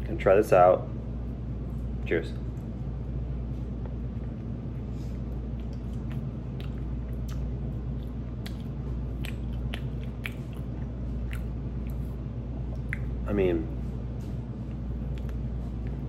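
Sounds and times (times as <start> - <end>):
steady low hum: 0.0 - 16.0
person chewing: 3.6 - 13.2, 14.6 - 16.0.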